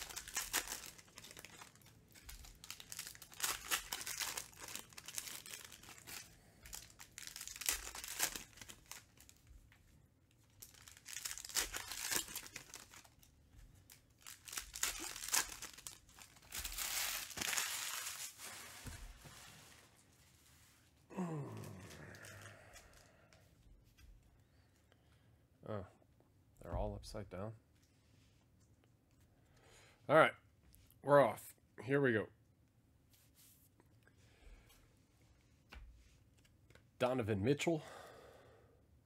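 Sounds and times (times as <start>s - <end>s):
foil wrappers tearing and crinkling: 0.0s - 9.4s, 10.6s - 13.2s, 13.9s - 19.3s.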